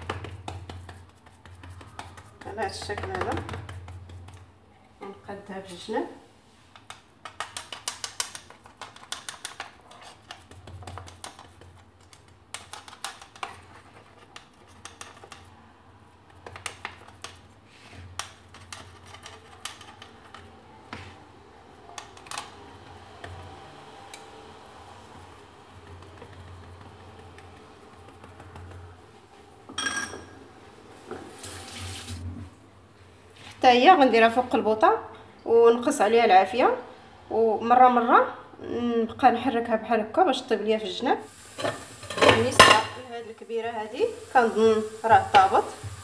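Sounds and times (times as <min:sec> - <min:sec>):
metal spoon scraping frying pan: 0:41.6 - 0:43.0.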